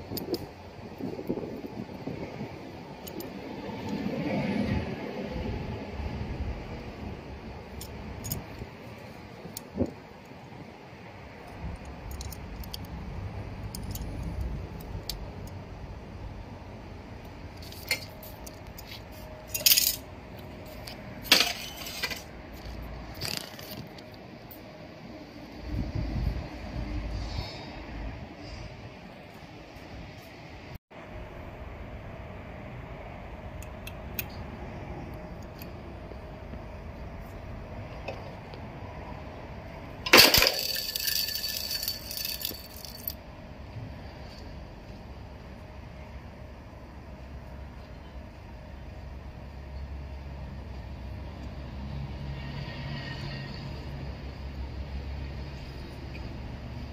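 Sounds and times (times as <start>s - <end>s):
sheet metal clinking and rattling: 40.1s - 43.2s.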